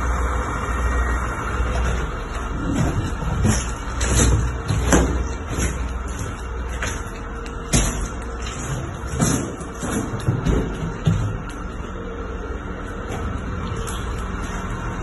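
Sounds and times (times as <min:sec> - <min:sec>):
footsteps over rubble: 0:01.6 - 0:15.0
debris cracking underfoot: 0:01.7 - 0:12.0.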